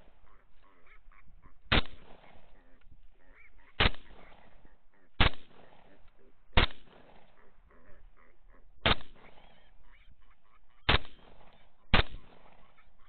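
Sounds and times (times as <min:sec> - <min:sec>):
rifle shots: 0:01.7 - 0:02.6, 0:03.7 - 0:07.4, 0:08.8 - 0:09.5, 0:10.9 - 0:12.7
hogs squealing and grunting: 0:07.3 - 0:10.8.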